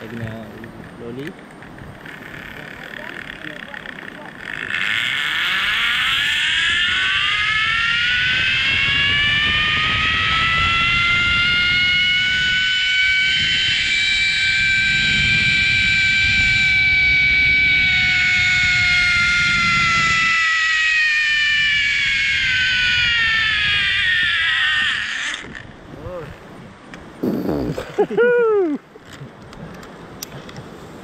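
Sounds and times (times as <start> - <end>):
wind rumble on microphone: 0.0 - 31.0
zip-line pulley whine: 1.7 - 26.3.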